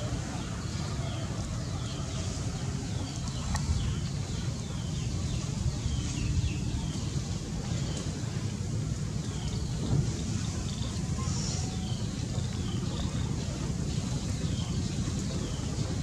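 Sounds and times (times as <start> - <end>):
small birds chirping: 0.0 - 8.1
wind on microphone: 0.0 - 16.0.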